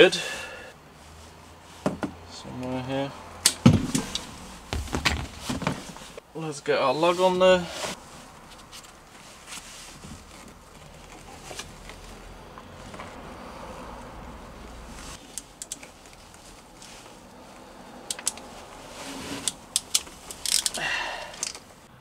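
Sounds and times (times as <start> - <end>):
hand tools and cable lug clinking: 18.0 - 18.5, 19.3 - 21.7.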